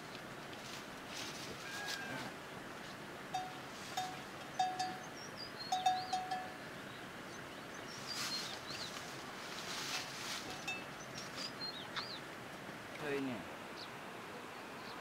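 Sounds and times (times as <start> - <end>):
soft hiss: 0.0 - 4.6, 6.6 - 15.0
small birds chirping: 3.4 - 15.0
clear steady-pitched notes: 5.7 - 6.6.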